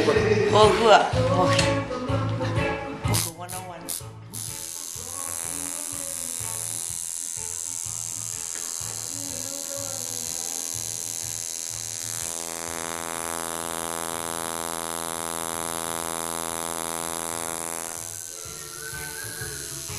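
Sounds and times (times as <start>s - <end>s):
tattoo machine buzzing: 3.1s - 19.9s.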